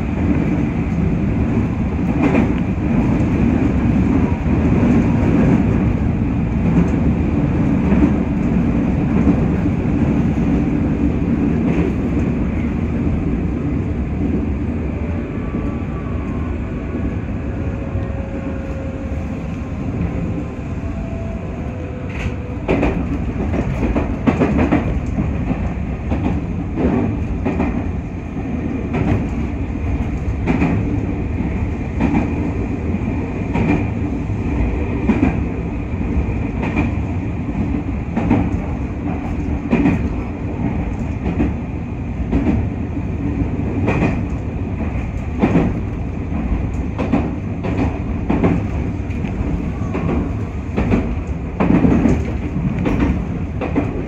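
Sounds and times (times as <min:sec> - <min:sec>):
train wheels rumbling: 0:00.0 - 0:54.0.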